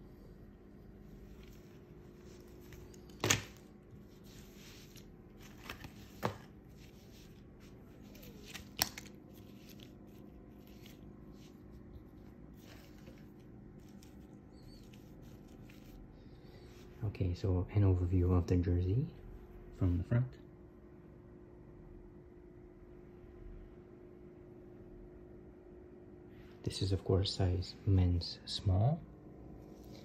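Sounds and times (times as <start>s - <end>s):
steady low hum: 0.0s - 30.0s
fabric rustling: 0.6s - 17.0s.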